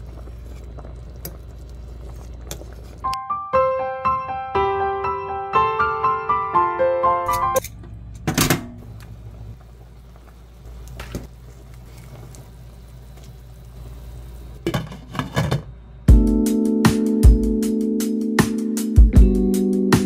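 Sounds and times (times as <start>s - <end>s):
broth boiling in pot: 0.0s - 3.2s, 8.8s - 15.7s
background music: 3.1s - 7.6s, 16.1s - 20.0s.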